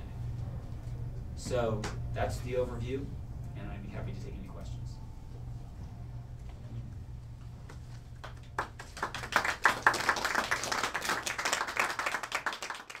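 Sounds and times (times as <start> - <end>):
low room hum: 0.0 - 13.0
audience clapping: 8.0 - 13.0.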